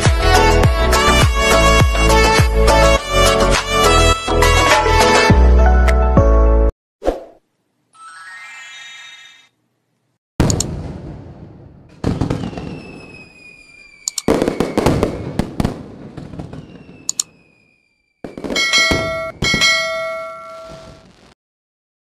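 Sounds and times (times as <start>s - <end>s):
firework bangs with crackling: 10.4s - 19.9s
falling whistle: 12.4s - 15.4s, 16.5s - 19.3s
bell-like chime: 18.6s - 21.0s.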